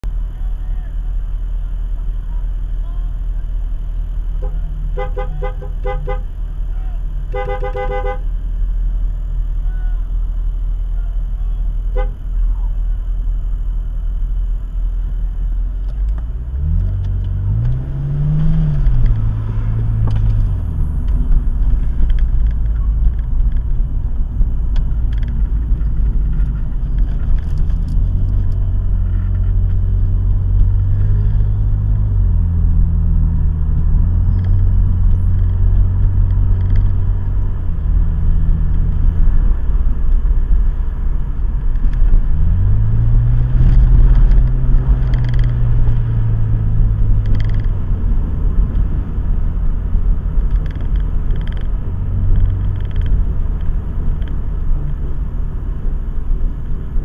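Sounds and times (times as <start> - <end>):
car engine: 0.0 - 57.0
road rumble: 0.0 - 57.0.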